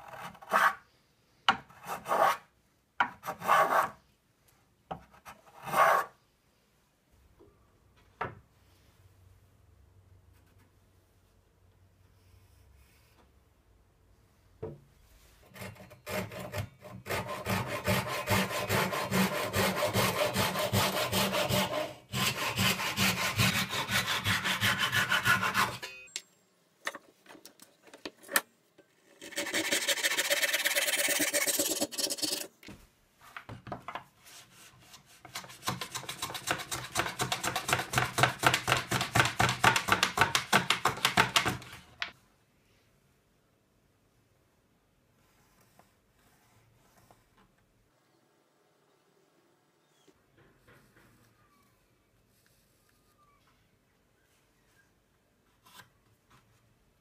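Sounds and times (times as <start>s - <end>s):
hand tools cutting wood: 15.5s - 25.8s.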